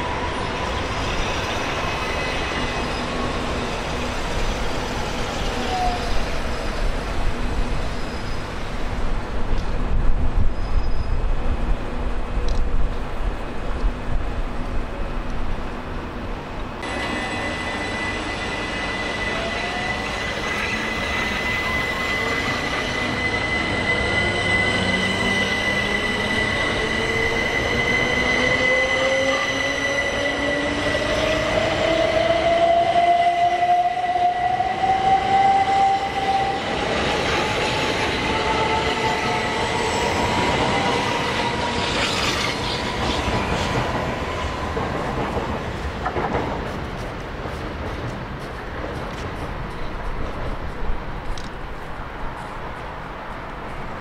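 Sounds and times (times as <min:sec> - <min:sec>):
wheels rumbling on rail: 0:00.0 - 0:54.0
steady high tone: 0:16.8 - 0:37.4.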